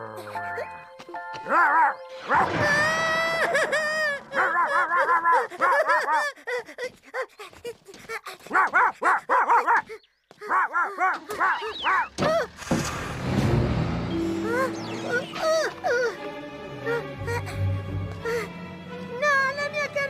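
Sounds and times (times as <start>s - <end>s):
cartoon dog barking: 4.3s - 6.3s, 8.5s - 12.1s.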